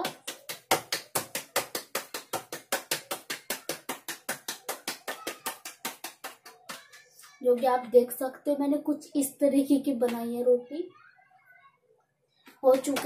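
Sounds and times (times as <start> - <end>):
hands patting dough: 0.0 - 7.4.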